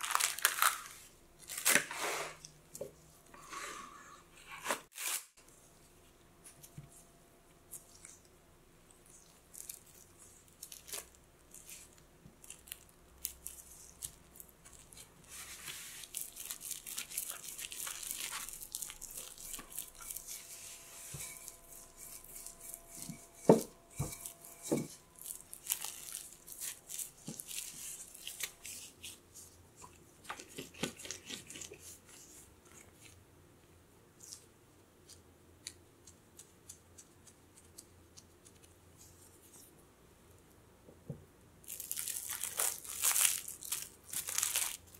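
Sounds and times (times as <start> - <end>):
cling film crinkling: 0.0 - 1.8, 9.4 - 20.4, 25.2 - 29.2, 41.6 - 44.9
rolling pin rolling dough: 19.0 - 25.1.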